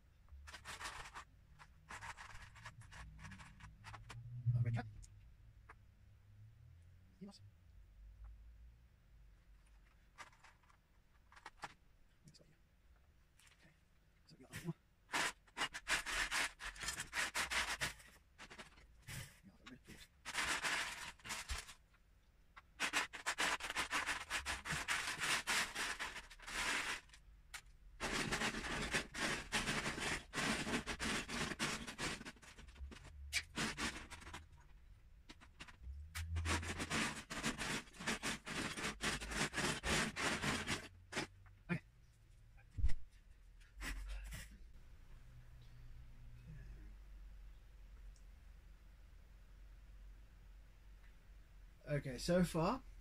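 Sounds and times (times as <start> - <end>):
plastic bricks clattering: 22.8 - 34.7.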